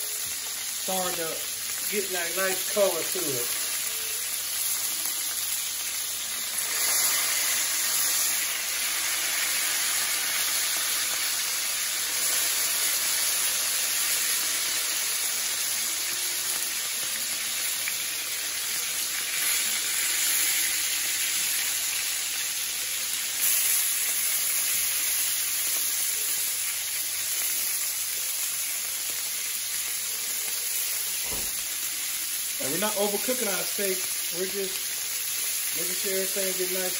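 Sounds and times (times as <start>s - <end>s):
steaks sizzling in a pan: 0.0s - 36.9s.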